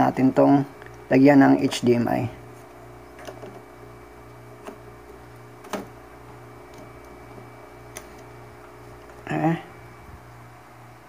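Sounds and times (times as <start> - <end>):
low electrical hum: 0.0 - 11.0
sharp clicks of cables and connectors: 3.2 - 3.7, 4.6 - 6.0, 6.7 - 8.3.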